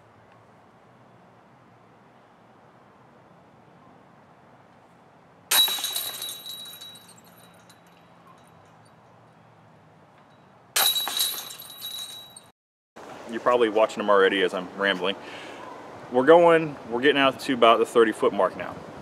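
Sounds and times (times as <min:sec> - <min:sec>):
disc golf chains jangling: 0:05.5 - 0:09.2, 0:10.2 - 0:12.5.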